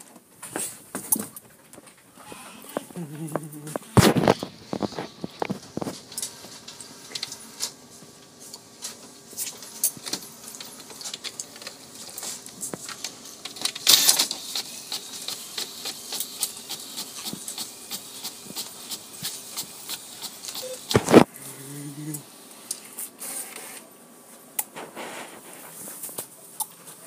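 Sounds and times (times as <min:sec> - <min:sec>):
inkjet printer printing: 0:02.1 - 0:21.4, 0:22.3 - 0:24.0
printer paper feed burst: 0:03.7 - 0:07.9, 0:08.8 - 0:21.3, 0:23.1 - 0:23.9.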